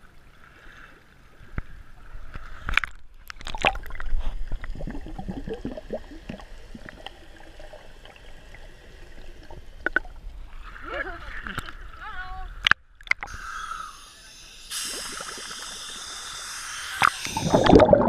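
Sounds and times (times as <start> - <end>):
underwater air bubbles gurgling: 3.5 - 10.2, 14.8 - 16.2, 16.9 - 18.0
camera plunging under water: 17.4 - 18.0.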